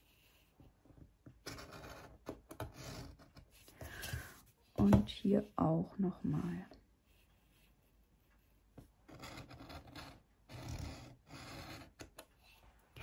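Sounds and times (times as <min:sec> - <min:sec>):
pencil scratching on paper: 0:00.0 - 0:03.7, 0:06.3 - 0:13.0.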